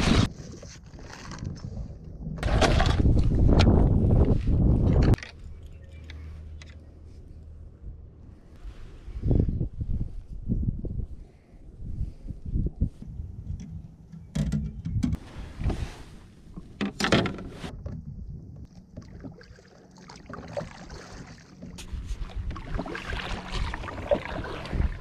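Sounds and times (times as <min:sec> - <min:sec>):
water swishing along hull: 0:15.2 - 0:16.8, 0:18.6 - 0:25.0.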